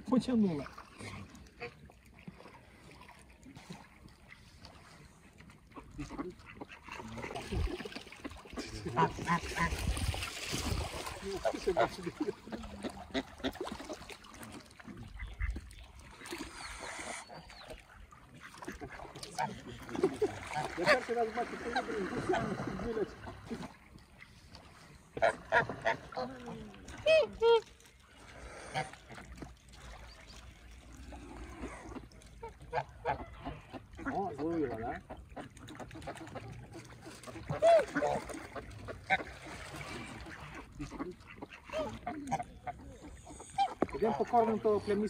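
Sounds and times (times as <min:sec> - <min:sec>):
waterfowl calling: 0:31.7 - 0:45.0.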